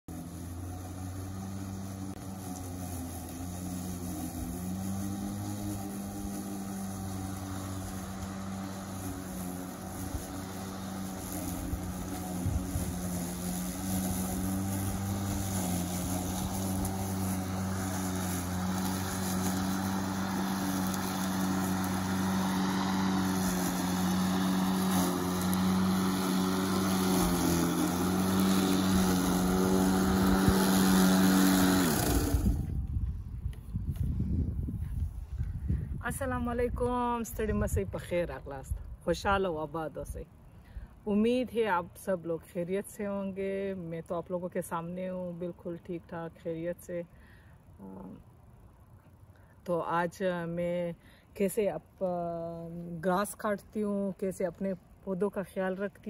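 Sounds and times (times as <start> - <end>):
electric lawn mower humming: 0.1 - 33.6.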